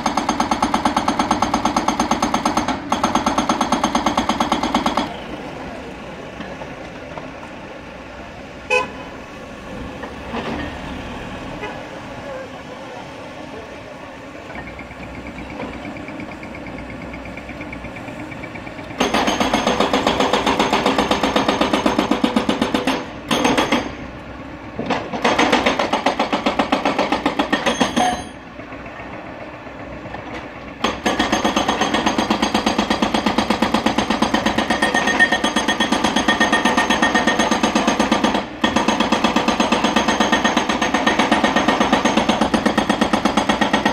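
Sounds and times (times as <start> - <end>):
hydraulic rock breaker hammering: 0.0 - 5.1, 18.8 - 24.1, 24.8 - 28.4, 30.2 - 43.9.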